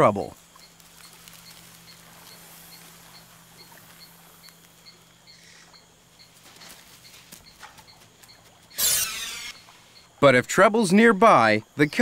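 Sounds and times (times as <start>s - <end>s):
low steady hum: 0.0s - 12.0s
soft ticks: 0.5s - 8.6s.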